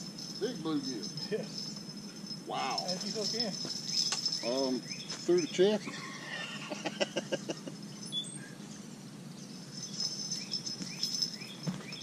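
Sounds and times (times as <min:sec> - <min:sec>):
insects trilling: 0:00.0 - 0:12.0
bird chirps: 0:03.5 - 0:06.4, 0:07.4 - 0:12.0.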